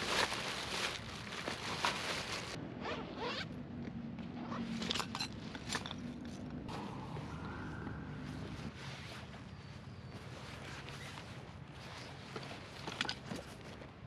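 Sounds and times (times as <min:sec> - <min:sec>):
nylon bags rustling and clicking: 0:00.0 - 0:02.6
zipper pulled open: 0:02.8 - 0:03.5.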